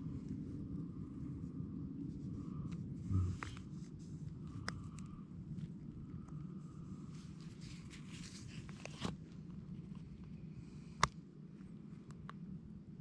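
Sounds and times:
faint scraping and rustling: 1.4s - 5.9s, 6.6s - 10.3s.

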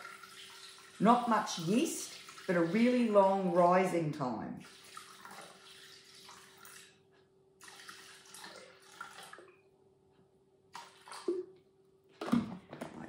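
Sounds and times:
water pouring into metal bowl: 0.0s - 3.6s, 4.6s - 6.9s, 7.6s - 9.6s.

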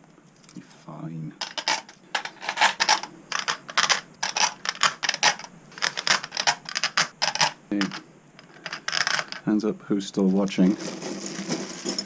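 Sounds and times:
metal hardware clinking: 1.4s - 9.5s, 11.0s - 12.0s.

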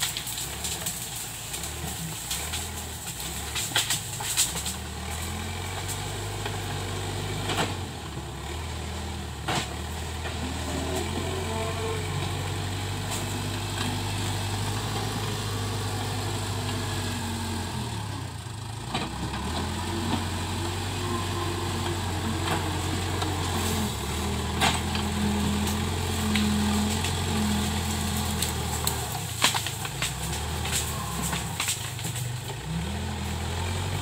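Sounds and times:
sharp cracks of brush: 0.0s - 4.8s, 27.8s - 32.4s
diesel engine running under load: 0.0s - 34.0s.

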